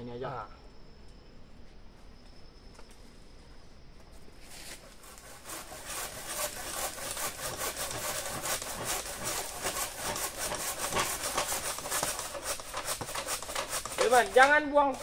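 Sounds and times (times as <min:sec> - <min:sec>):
hand saw cutting wood: 0:04.7 - 0:15.0.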